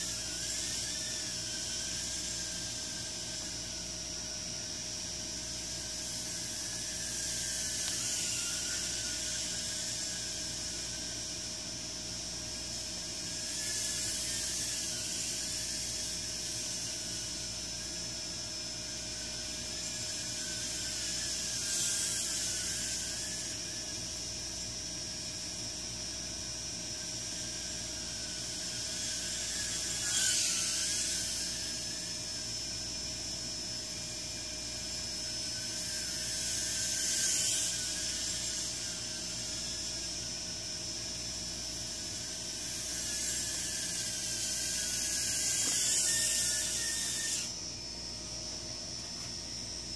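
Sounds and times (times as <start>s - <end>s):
quadcopter motors whining: 0.0s - 49.9s
steady hiss: 0.0s - 49.9s.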